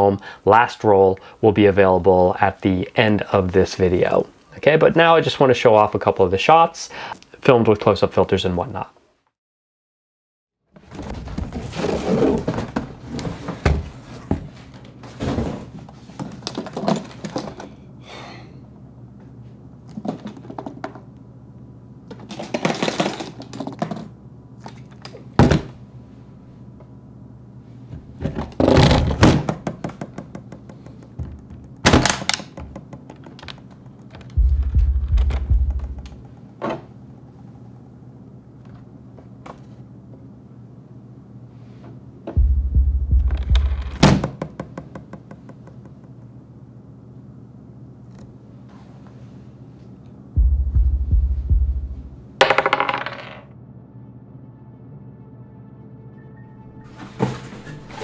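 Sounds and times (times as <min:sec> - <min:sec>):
objects thudding and knocking: 0:10.7 - 0:17.7, 0:28.0 - 0:36.9, 0:42.4 - 0:45.7, 0:50.4 - 0:53.4, 0:56.9 - 0:58.0
low steady hum: 0:11.4 - 0:58.0
deep rumble: 0:34.2 - 0:36.4, 0:42.4 - 0:44.1, 0:50.4 - 0:52.4
sharp hits: 0:34.4 - 0:36.2, 0:42.4 - 0:44.2, 0:50.4 - 0:52.2.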